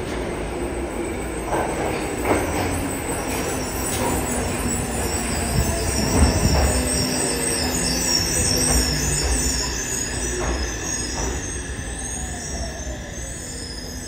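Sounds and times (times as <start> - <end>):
train wheels rumbling on rails: 0.0 - 14.0
high squealing tones: 4.2 - 14.0.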